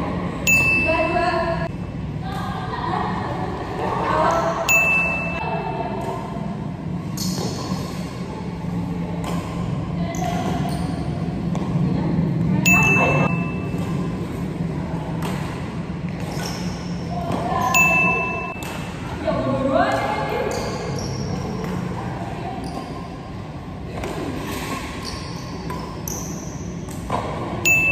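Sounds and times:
rackets hitting shuttlecock: 9.2 - 10.6, 15.1 - 19.1, 24.0 - 27.9.

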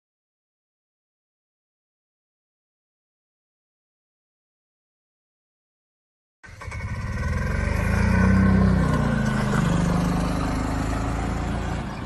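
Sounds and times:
vehicle engine running: 6.6 - 12.0.

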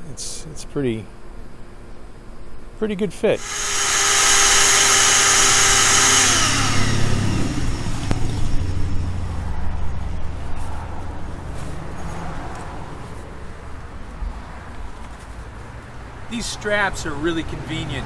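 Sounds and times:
shop vacuum whining: 3.4 - 9.2
street traffic rumble: 5.8 - 18.0.

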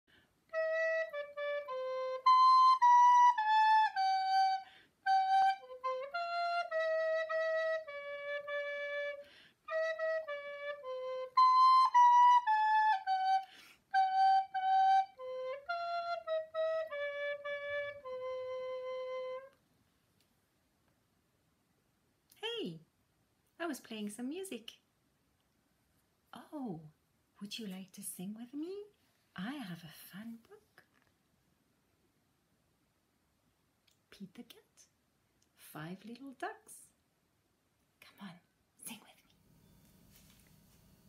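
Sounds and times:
recorder playing a melody: 0.5 - 19.6.

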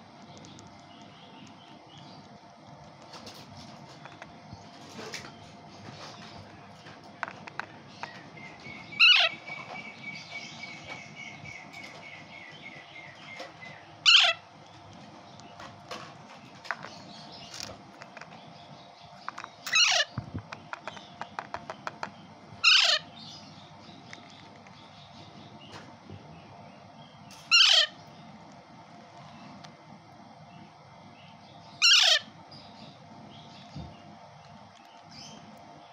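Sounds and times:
soft chirps and ticks: 0.0 - 13.9, 14.5 - 22.4, 23.3 - 25.9, 32.6 - 35.9
parakeet chick screeching calls: 8.8 - 10.2, 14.0 - 14.5, 19.6 - 20.2, 22.6 - 23.4, 27.4 - 28.0, 31.7 - 32.3.

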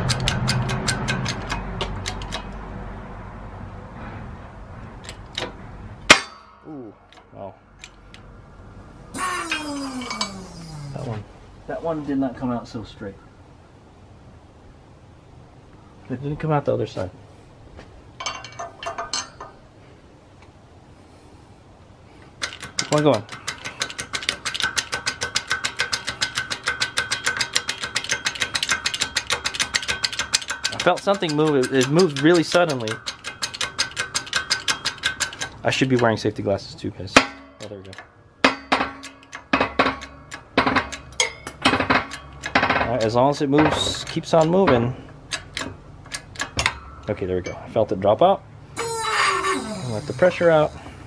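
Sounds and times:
ringing metal clang: 6.1 - 6.8, 9.2 - 11.0, 37.1 - 44.9, 46.5 - 47.8
steel parts clinking: 9.2 - 11.1, 18.2 - 19.6, 22.4 - 36.3, 37.1 - 47.7.

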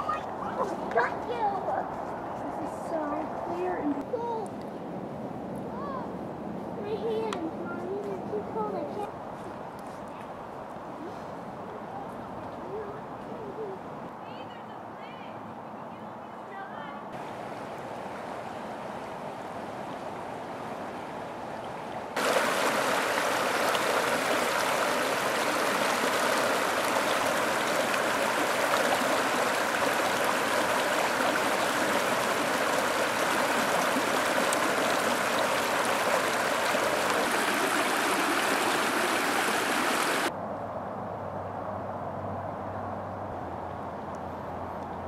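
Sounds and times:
creek water flowing over rocks: 17.2 - 40.3.

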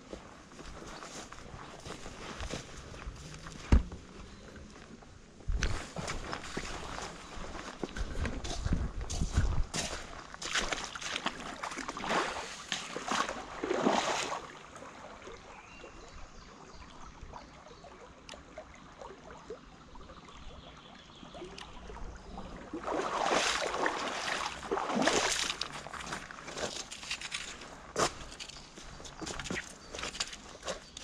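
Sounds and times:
footsteps splashing in stream: 0.6 - 3.9, 5.6 - 15.5, 22.6 - 31.0
stream trickling: 0.6 - 31.0.

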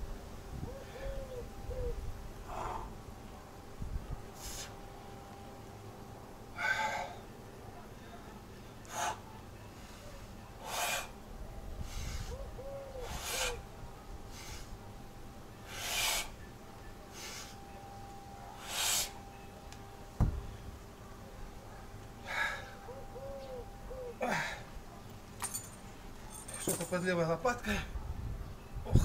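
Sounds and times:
man breathing hard: 2.4 - 3.0, 6.6 - 7.2, 8.9 - 11.2, 11.8 - 13.6, 15.6 - 16.4, 22.2 - 22.9, 24.1 - 24.7
kettlebell thud on grass: 20.2 - 20.5.

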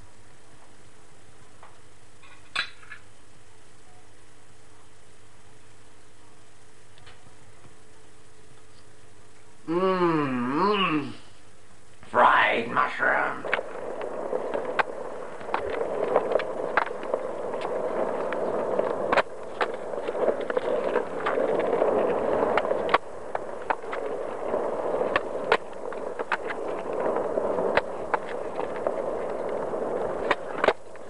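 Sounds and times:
skateboard wheels rolling on concrete: 0.0 - 31.0
wheels clicking over slab joints: 13.4 - 31.0.

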